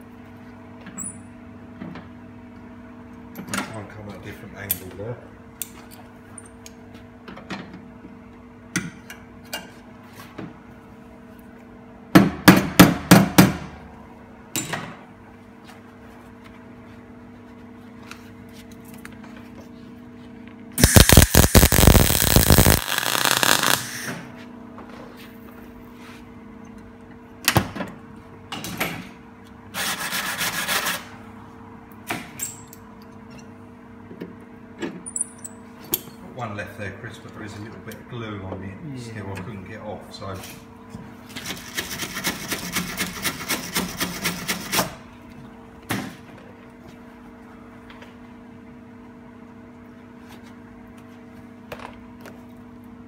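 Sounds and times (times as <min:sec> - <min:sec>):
steady low hum: 0:09.9 - 0:27.4
welder crackling: 0:20.8 - 0:24.1.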